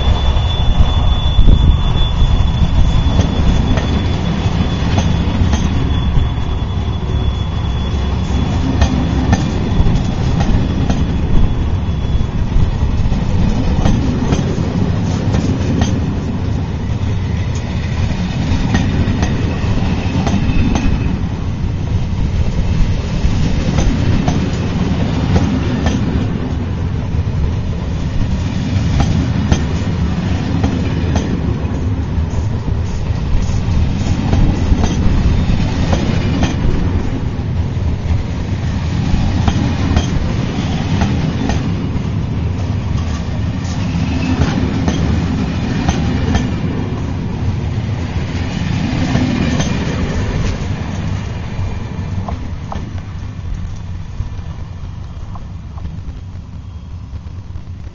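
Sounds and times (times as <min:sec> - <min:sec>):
high wheel squeal: 0:00.0 - 0:26.9, 0:28.2 - 0:37.3, 0:38.9 - 0:47.0
train coaches rumbling past: 0:00.0 - 0:57.9.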